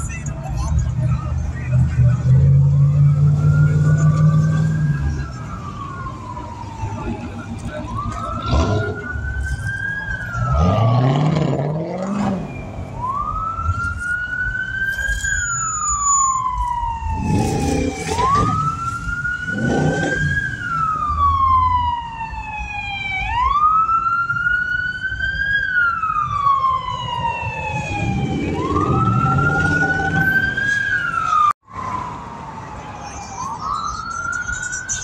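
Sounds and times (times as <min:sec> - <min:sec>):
siren wailing: 0:00.7 - 0:35.0
engine revving: 0:08.3 - 0:09.2, 0:10.3 - 0:12.6, 0:17.1 - 0:20.6, 0:27.8 - 0:30.6.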